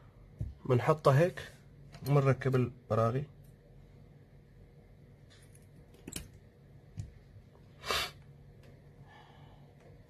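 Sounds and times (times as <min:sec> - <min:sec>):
metal tools clicking and tapping: 0:05.3 - 0:06.4.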